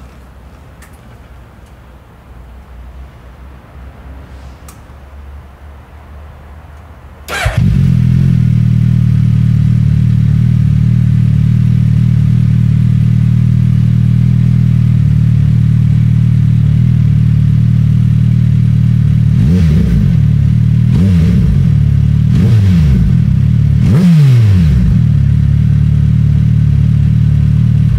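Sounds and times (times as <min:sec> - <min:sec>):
motorcycle engine idling: 0:07.3 - 0:23.9, 0:24.8 - 0:27.9
motorcycle engine revving: 0:07.3 - 0:27.9.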